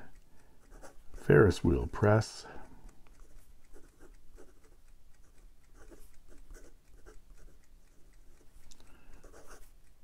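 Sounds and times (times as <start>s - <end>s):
pen scratching on paper: 0.6s - 1.6s, 3.1s - 10.0s.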